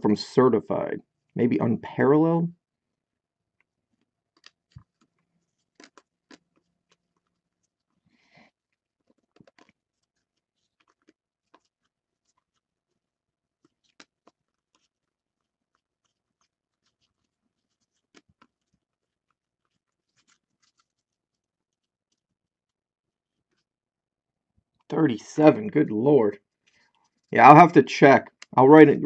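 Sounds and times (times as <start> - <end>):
trading cards being handled: 15.7 - 21.2.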